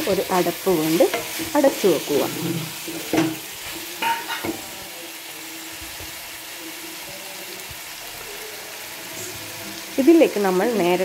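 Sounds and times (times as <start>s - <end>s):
onions and tomatoes frying: 0.0s - 11.0s
spoon scraping a pot: 0.9s - 4.6s.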